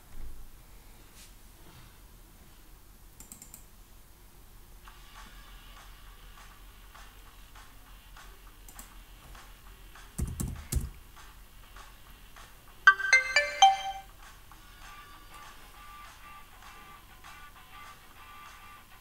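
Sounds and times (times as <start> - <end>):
computer notification chime: 12.9 - 14.1.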